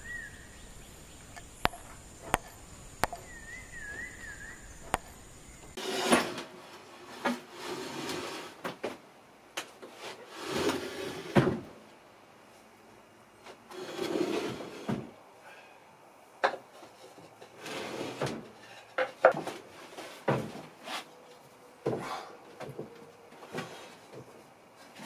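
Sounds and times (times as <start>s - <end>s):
metal lathe scraping on bench: 5.8s - 6.4s.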